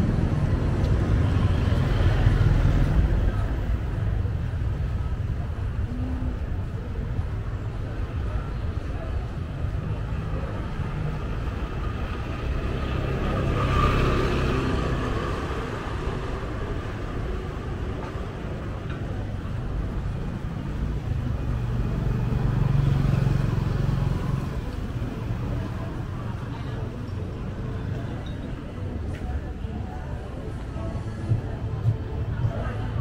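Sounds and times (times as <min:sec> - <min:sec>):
motor vehicles passing: 0:09.8 - 0:29.7.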